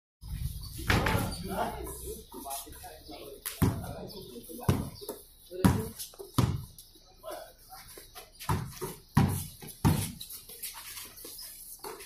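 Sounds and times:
basketball bouncing on concrete: 0:03.5 - 0:06.8, 0:08.4 - 0:10.3.

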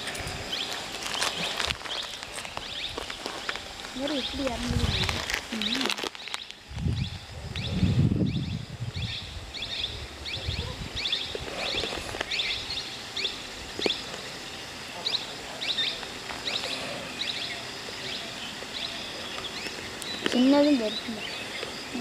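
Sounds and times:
open country ambience: 0:00.0 - 0:22.0
bird chirps: 0:04.1 - 0:14.1, 0:15.0 - 0:22.0.

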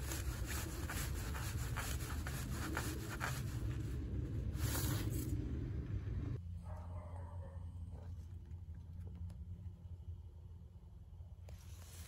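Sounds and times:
steady low rumble: 0:00.1 - 0:06.7.

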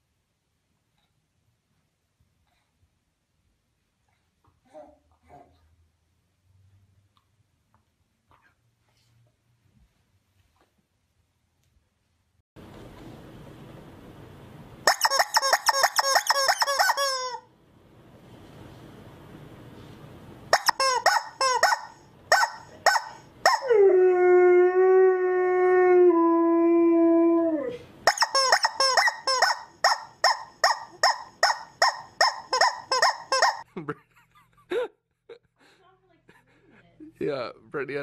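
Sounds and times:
rubber chicken toy squealing: 0:14.9 - 0:17.5, 0:20.6 - 0:23.6, 0:28.1 - 0:33.6.

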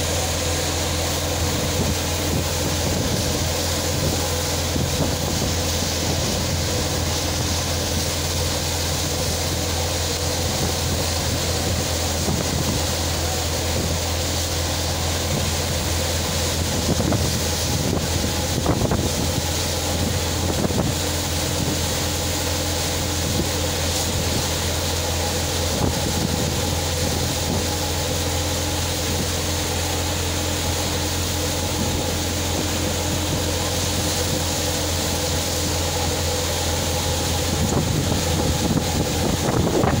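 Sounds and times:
thresher and tractor running: 0:00.0 - 0:40.0.

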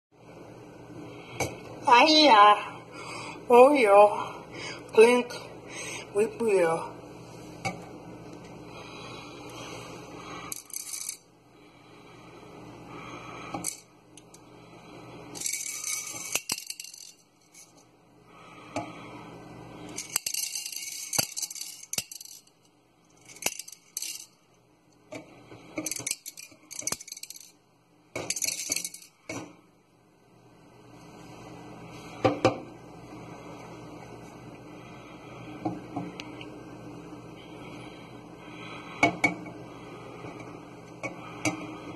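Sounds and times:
candy sprinkles rattling in a cup: 0:20.0 - 0:22.5.

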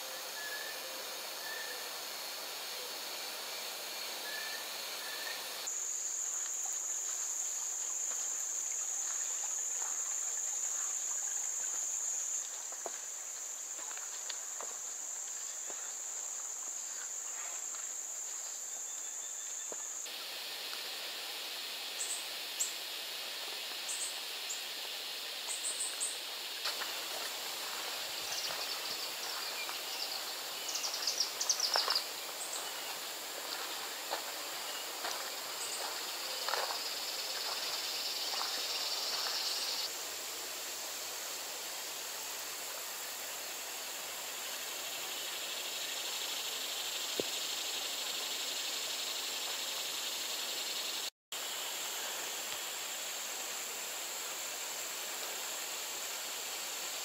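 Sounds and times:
high-pitched insect buzz: 0:18.8 - 0:39.9.

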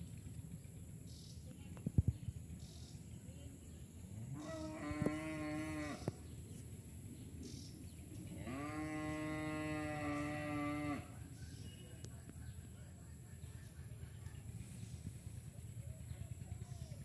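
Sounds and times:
cow mooing: 0:04.3 - 0:06.1, 0:08.4 - 0:11.2.

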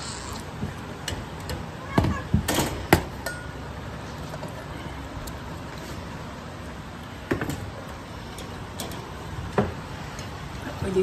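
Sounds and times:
electric fan whooshing: 0:02.7 - 0:11.0.

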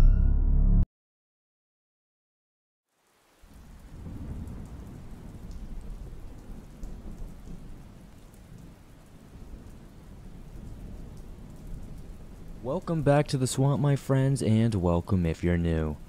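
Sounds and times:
rain falling: 0:02.9 - 0:16.0
low rumble of thunder: 0:03.5 - 0:13.3.

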